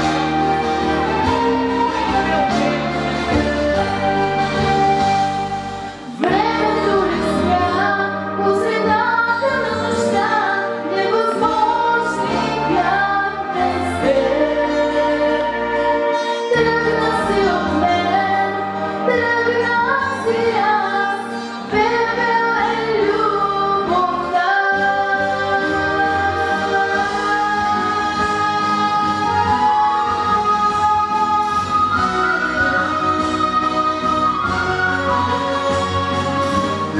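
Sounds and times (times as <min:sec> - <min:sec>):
instrumental accompaniment: 0:00.0 - 0:36.9
girl singing into microphone: 0:06.1 - 0:33.9.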